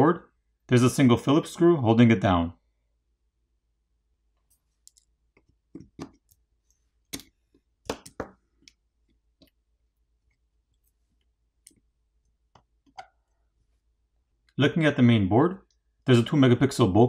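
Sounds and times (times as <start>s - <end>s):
screwdriver clicks and taps on phone: 7.1s - 8.8s.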